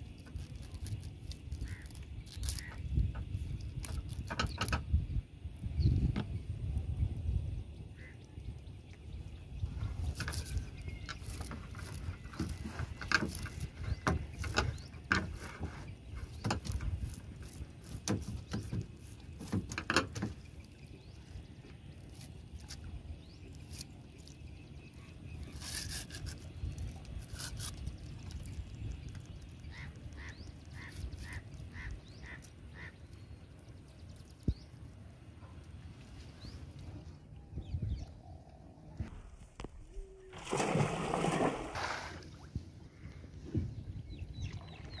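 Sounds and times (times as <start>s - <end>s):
clicks and knocks on boat: 2.6s - 5.0s, 10.2s - 20.6s.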